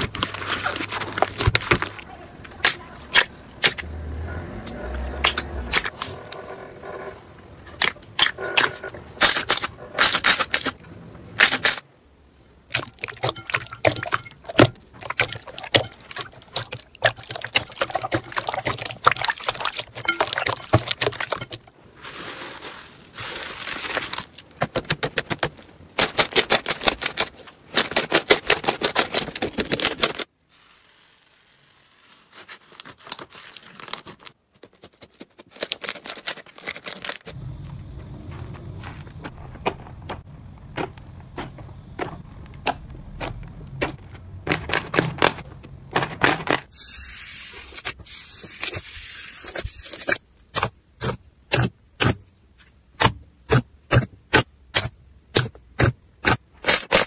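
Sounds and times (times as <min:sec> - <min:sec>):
slime squelching: 0:12.7 - 0:24.1.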